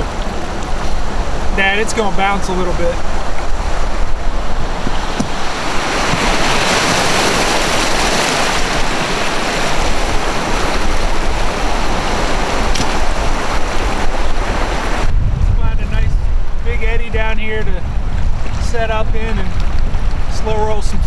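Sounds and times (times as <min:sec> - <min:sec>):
river rapids rushing: 0:00.0 - 0:15.1
wind rumble on microphone: 0:00.0 - 0:21.0.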